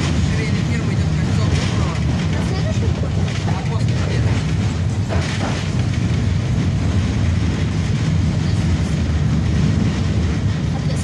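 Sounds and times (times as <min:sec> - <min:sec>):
tram wheels rumbling on rails: 0:00.0 - 0:11.0.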